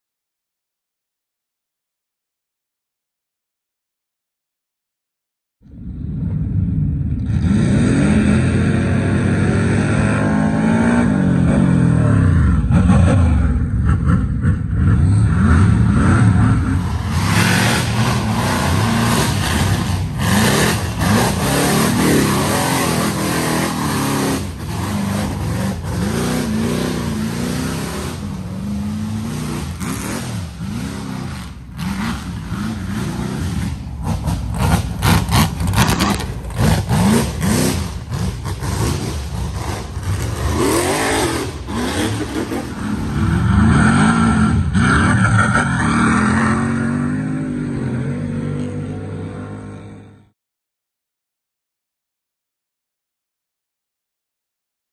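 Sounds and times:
engine revving hard: 7.2 - 50.2.

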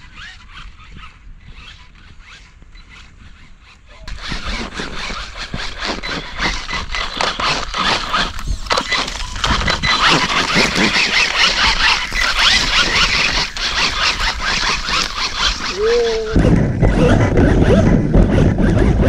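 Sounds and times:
tyres spinning in loose sand: 3.7 - 19.0.

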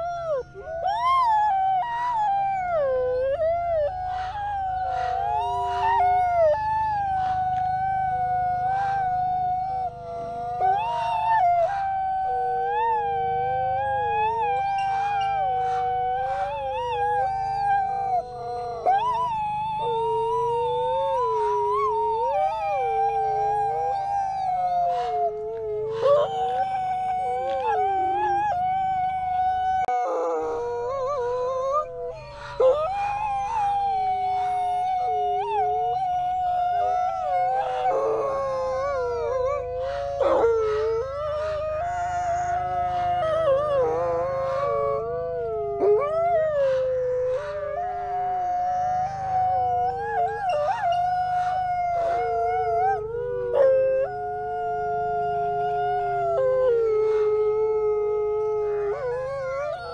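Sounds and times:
wolves howling: 0.0 - 59.9.

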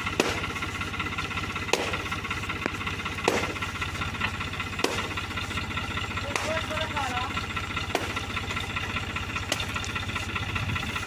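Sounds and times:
tractor diesel engine running: 0.0 - 11.0
sharp knocks or clanks: 1.6 - 3.7, 4.7 - 7.0, 7.8 - 8.4.

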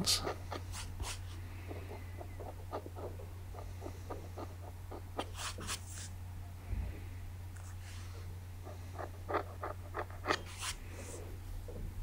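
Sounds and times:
blade scraping paint on canvas: 0.0 - 6.1, 8.7 - 11.2.

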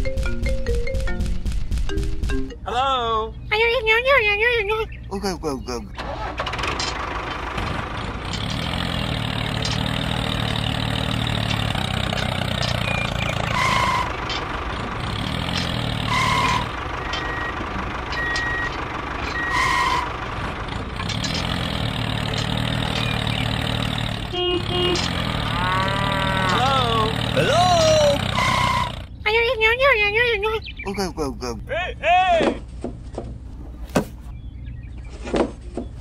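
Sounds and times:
tractor engine running: 0.0 - 2.7, 3.4 - 31.7.

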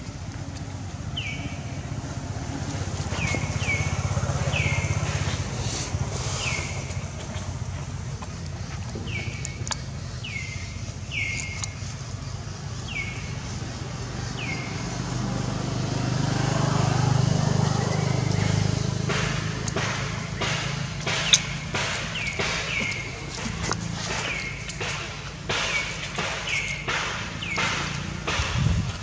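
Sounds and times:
motor vehicle passing: 0.0 - 29.0
high chirping calls: 1.1 - 16.1, 17.0 - 28.4
dry leaves crackling: 13.5 - 28.3
sharp click: 19.1 - 29.0.

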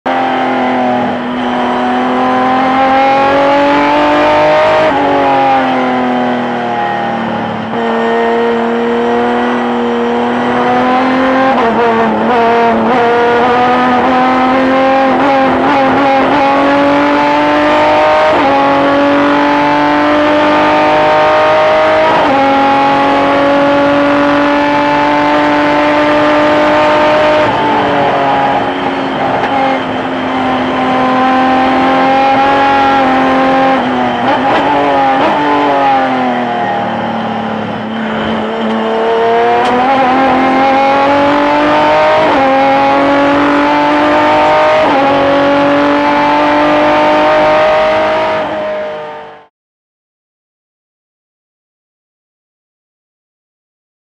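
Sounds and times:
racing truck engine shifting gears: 0.1 - 49.5.

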